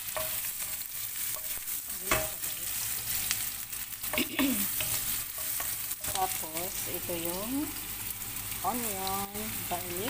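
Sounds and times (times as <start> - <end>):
wooden spoon scraping a pan: 0.0 - 6.8
onion sizzling in hot oil: 0.0 - 10.0.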